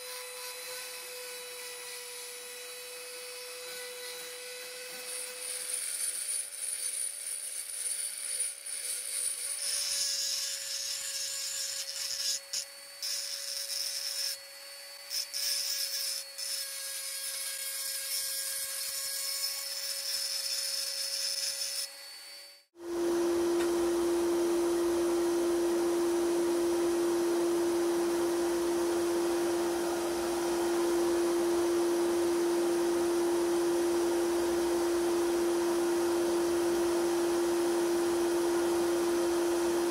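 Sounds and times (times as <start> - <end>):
rotary tool grinding metal: 0.0 - 22.7
constant hum: 22.8 - 39.9.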